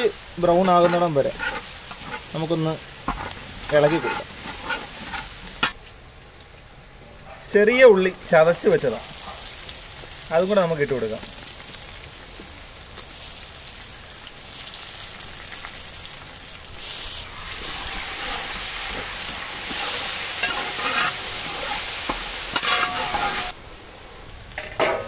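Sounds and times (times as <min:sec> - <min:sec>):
stirring and scraping a pan: 0:00.0 - 0:05.8, 0:17.2 - 0:23.6
shallots sizzling in a pan: 0:00.0 - 0:06.6, 0:07.4 - 0:25.0.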